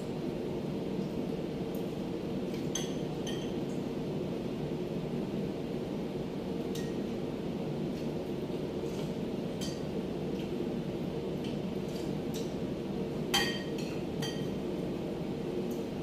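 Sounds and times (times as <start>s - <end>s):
steady low hum: 0.0s - 16.0s
cutlery clinking on plates: 13.4s - 14.6s.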